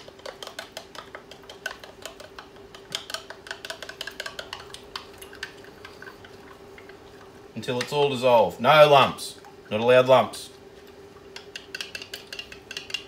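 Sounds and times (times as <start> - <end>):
spoon stirring in a cup: 0.0 - 7.0, 11.2 - 13.0
faint steady hum: 0.0 - 13.0.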